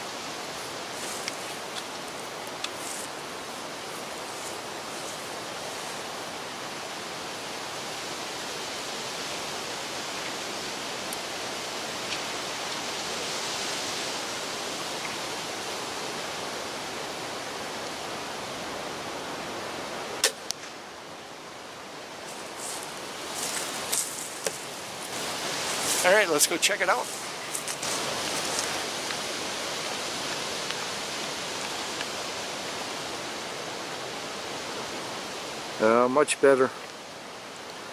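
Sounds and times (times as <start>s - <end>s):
wind-like outdoor noise: 0.0s - 37.9s
crossbow shot: 20.2s - 20.8s.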